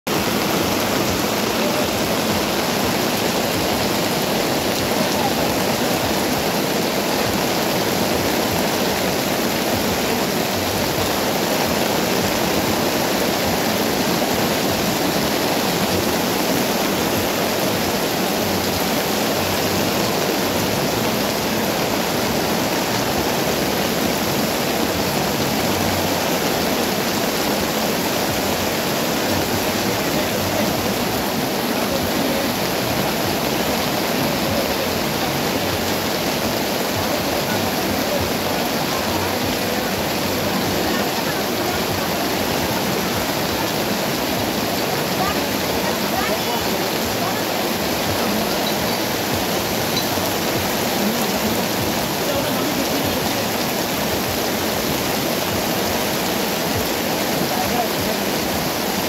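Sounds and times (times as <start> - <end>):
heavy rain on pavement: 0.0 - 59.0.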